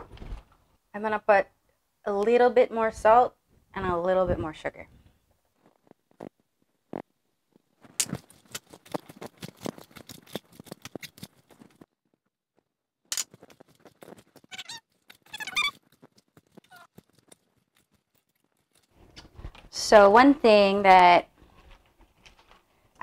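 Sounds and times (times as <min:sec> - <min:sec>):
short squeaks: 0:14.4 - 0:17.0.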